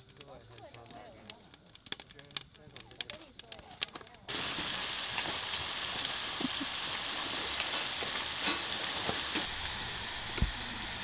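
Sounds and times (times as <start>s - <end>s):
small pops: 0.0s - 4.3s
hot oil sizzling: 0.1s - 11.0s.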